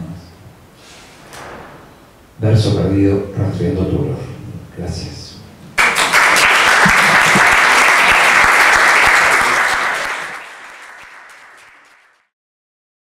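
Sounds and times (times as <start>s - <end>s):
audience applauding: 5.8s - 12.3s.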